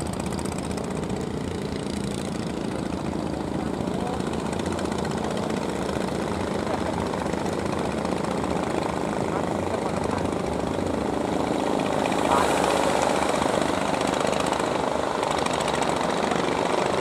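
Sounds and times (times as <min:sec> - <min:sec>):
boat engines droning: 0:00.0 - 0:17.0
water noise: 0:08.4 - 0:17.0.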